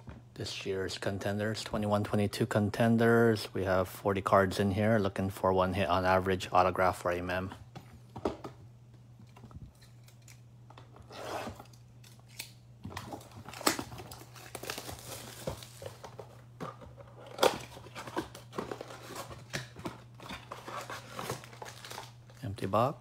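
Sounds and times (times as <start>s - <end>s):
cellophane crinkling and tearing: 11.2s - 16.4s, 17.0s - 22.6s
box rustling and snapping: 11.4s - 22.2s.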